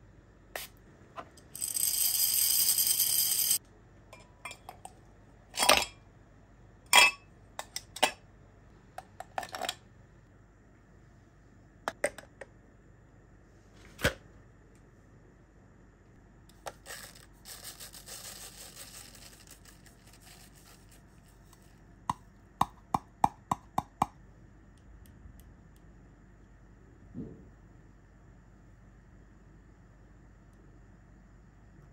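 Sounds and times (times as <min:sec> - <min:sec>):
ground coffee pouring into filter: 0:16.7 - 0:21.7.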